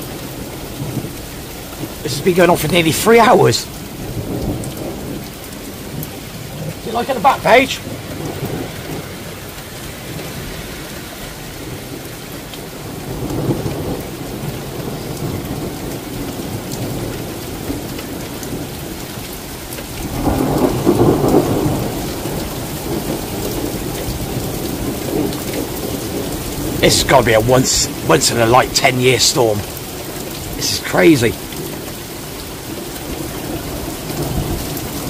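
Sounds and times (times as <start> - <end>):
heavy rain falling: 0.0 - 35.0
rolling thunder: 7.8 - 11.0, 19.9 - 27.1.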